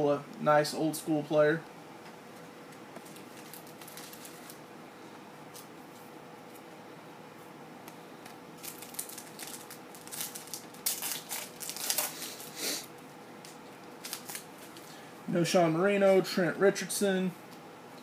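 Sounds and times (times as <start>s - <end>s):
foil wrapper crinkling: 3.0s - 4.6s, 8.6s - 15.0s.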